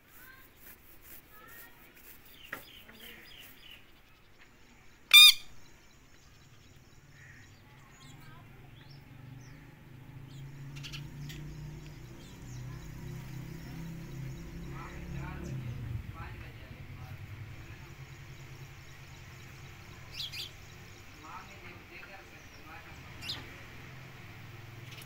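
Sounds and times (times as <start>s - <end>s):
faint bird chirps: 0.1s - 16.0s
parrot squawk: 5.1s - 5.5s
sharp bird call: 5.1s - 5.6s.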